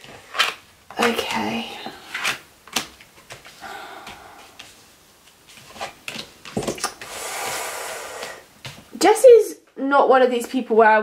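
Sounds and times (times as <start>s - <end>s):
cards tapping and flicking: 0.0s - 4.7s.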